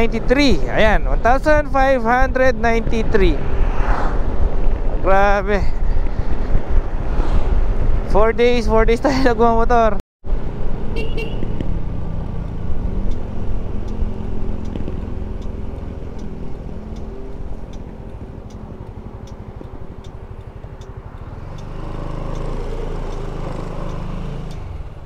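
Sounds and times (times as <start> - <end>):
faint regular ticks: 12.4 - 24.7
motorcycle engine running: 13.0 - 25.0.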